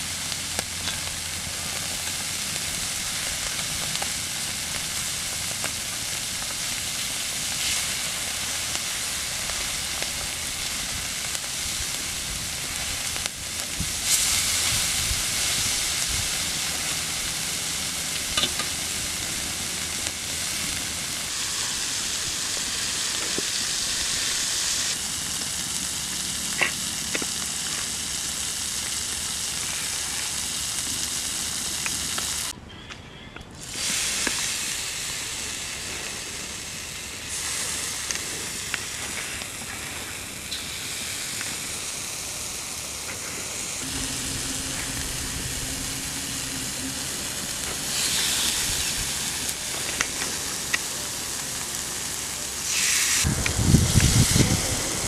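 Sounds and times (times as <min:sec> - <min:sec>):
fish sizzling on griddle: 0:00.0 - 0:32.5, 0:33.6 - 0:55.0.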